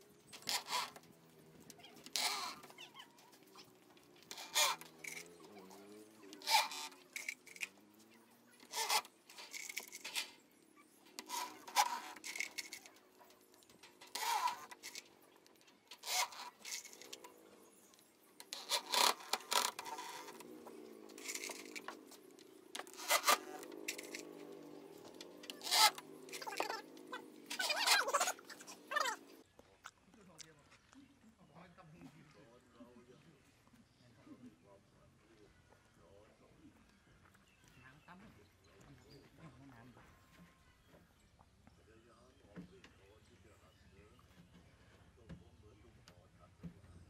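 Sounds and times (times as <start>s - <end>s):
metallic scraping: 0.2s - 29.4s
screws rattling in a tub: 0.3s - 7.8s, 8.6s - 15.2s, 15.9s - 17.4s, 18.4s - 29.3s
cordless drill driving screws: 0.4s - 1.0s, 2.0s - 2.6s, 4.2s - 7.7s, 8.6s - 10.3s, 11.1s - 12.9s, 14.1s - 15.1s, 15.9s - 17.4s, 18.4s - 22.1s, 22.8s - 24.6s, 25.2s - 29.0s.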